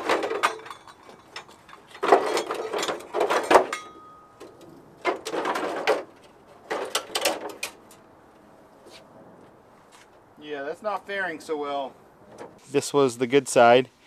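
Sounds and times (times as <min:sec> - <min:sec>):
plastic bumper scraping and cracking: 0:05.0 - 0:07.8.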